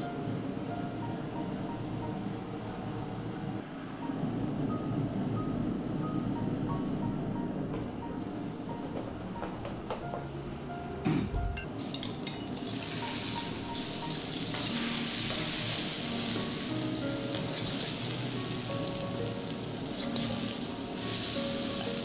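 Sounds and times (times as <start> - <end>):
food sizzling in hot oil: 11.8 - 22.0.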